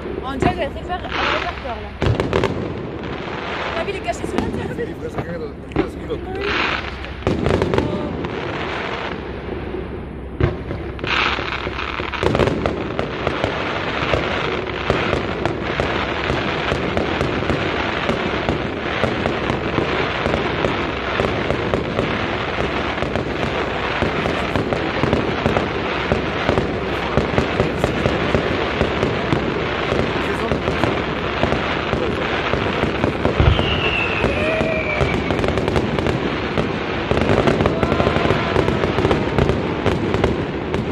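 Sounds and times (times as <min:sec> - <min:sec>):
fireworks crackling and popping: 0:00.0 - 0:40.9
firework shells bursting: 0:10.4 - 0:40.9.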